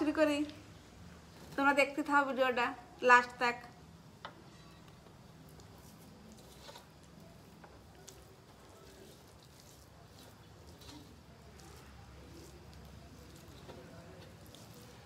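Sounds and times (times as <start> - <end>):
soft squishes of food mixing: 0.0 - 15.0.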